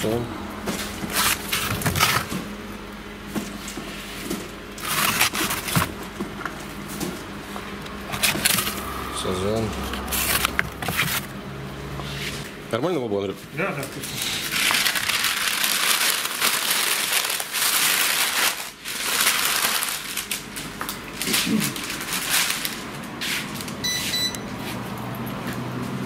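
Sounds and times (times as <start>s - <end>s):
plastic bag crinkling: 4.7s - 6.0s, 13.8s - 23.8s
short electronic beep: 23.8s - 24.5s.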